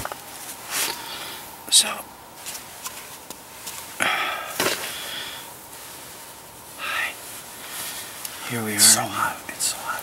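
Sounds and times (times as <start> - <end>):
breathy puffs of breath: 4.0 - 5.6.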